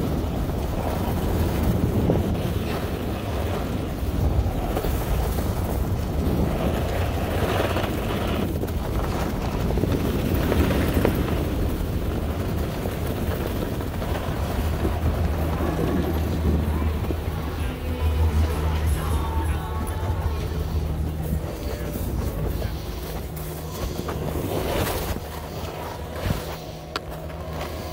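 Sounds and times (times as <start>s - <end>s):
skis scraping snow: 0.0s - 27.9s
wind buffeting microphone: 0.0s - 27.9s.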